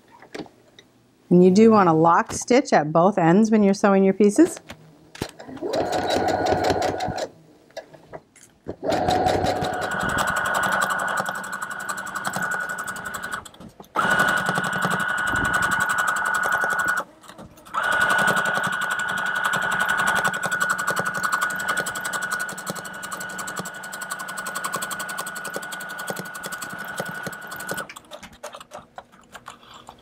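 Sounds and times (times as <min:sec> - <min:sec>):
sewing machine stitching: 0:05.4 - 0:07.3, 0:08.8 - 0:28.9.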